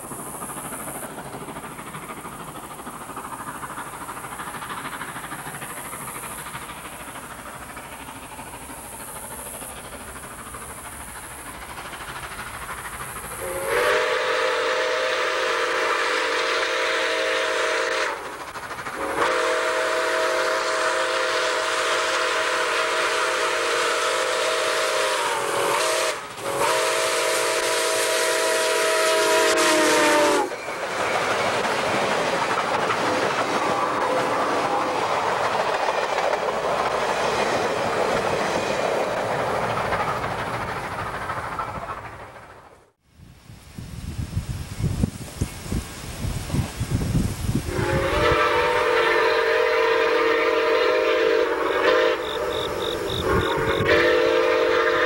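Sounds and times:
steam locomotive rumble and hiss: 0.0 - 55.0
train chime whistle blasts: 13.4 - 18.2, 19.0 - 30.6, 47.7 - 55.0.

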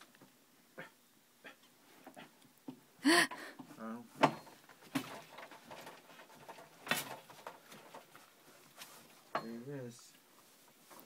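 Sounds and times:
wooden loom knocking and clicking: 4.2 - 8.1.

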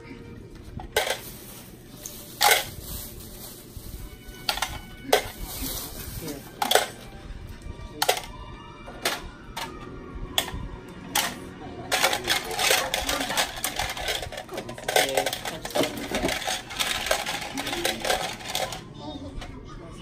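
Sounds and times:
plastic accessories rattling and clicking: 0.8 - 1.4, 2.4 - 2.8, 4.4 - 7.0, 8.0 - 8.3, 11.2 - 18.8.

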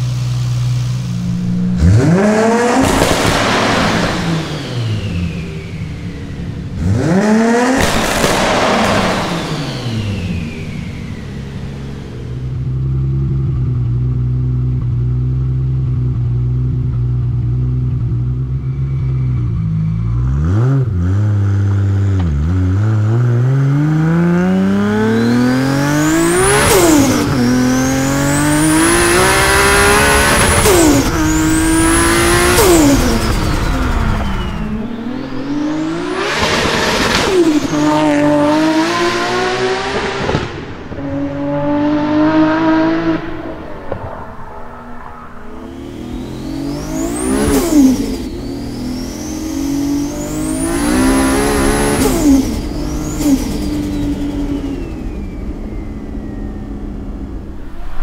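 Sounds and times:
car engine revving through gears: 0.0 - 15.5, 19.4 - 58.0.

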